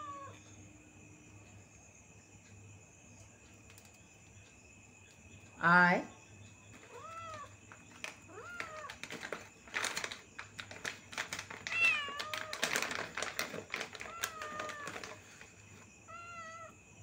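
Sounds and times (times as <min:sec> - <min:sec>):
cat meowing: 0:00.0 - 0:00.4, 0:06.9 - 0:07.6, 0:08.3 - 0:09.0, 0:11.7 - 0:12.8, 0:14.0 - 0:15.2, 0:16.1 - 0:16.8.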